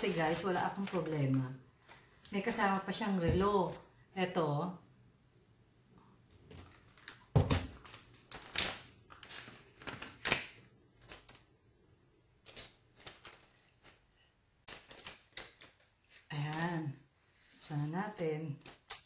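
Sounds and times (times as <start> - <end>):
plastic rustling: 0.0 - 2.7, 6.4 - 11.6, 12.4 - 19.0.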